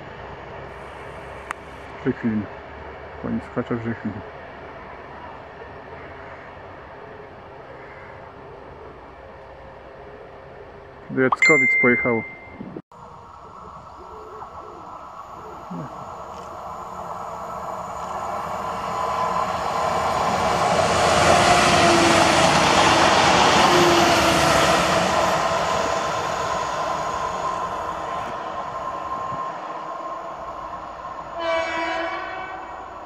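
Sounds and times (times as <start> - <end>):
electric train passing: 13.0 - 33.0.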